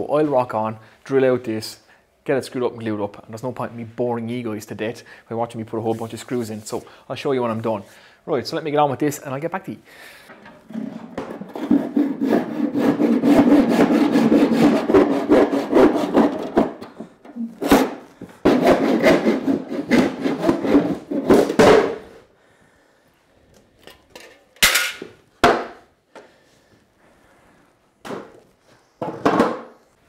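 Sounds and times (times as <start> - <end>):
handsaw cutting wood: 10.7 - 16.9, 17.6 - 21.6.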